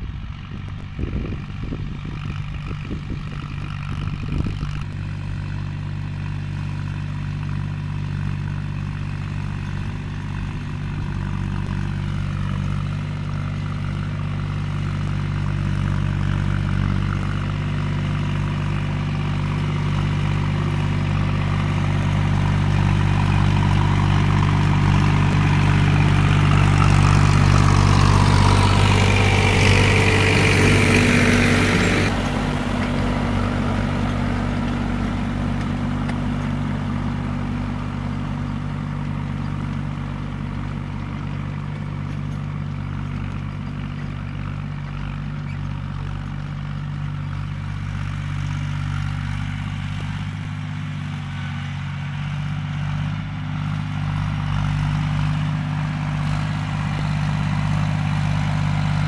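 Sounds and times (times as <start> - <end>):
tractor diesel engine running: 0.0 - 59.0.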